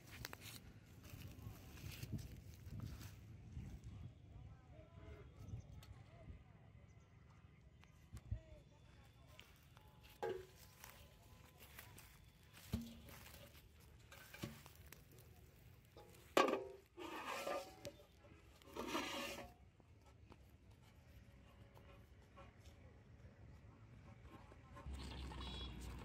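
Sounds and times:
basin scraping on ground: 0:11.6 - 0:19.6.

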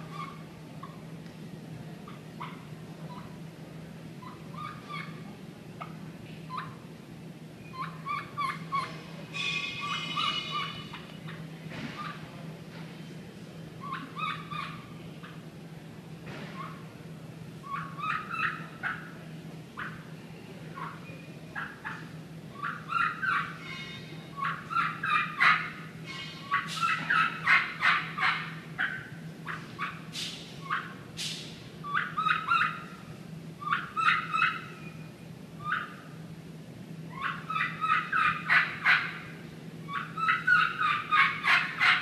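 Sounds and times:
faint steady hum: 0:00.0 - 0:42.0.

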